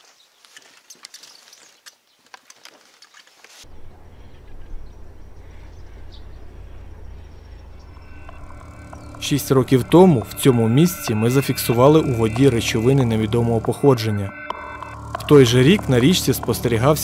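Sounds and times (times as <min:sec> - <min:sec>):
steady low rumble: 0:03.6 - 0:17.0.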